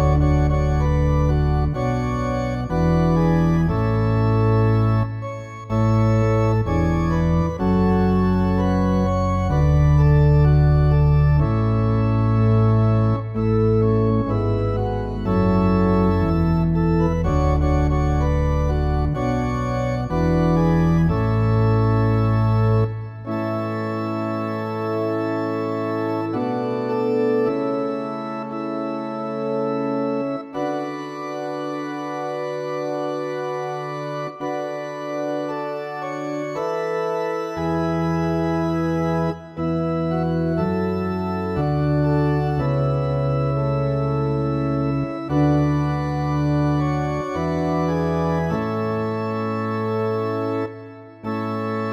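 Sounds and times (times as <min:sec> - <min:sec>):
organ playing chords: 0:00.0 - 0:51.9.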